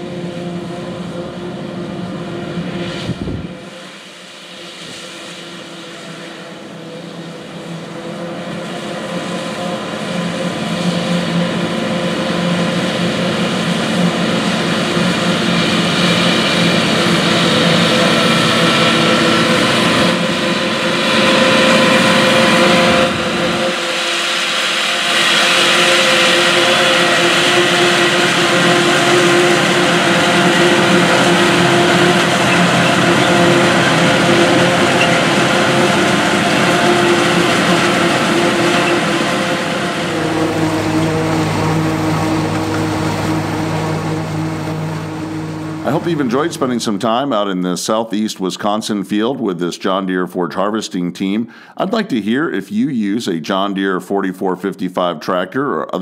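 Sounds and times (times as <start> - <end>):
forage harvester machine whine: 0.0 - 49.3, 51.3 - 53.3
tractor diesel engine under load: 5.7 - 48.8.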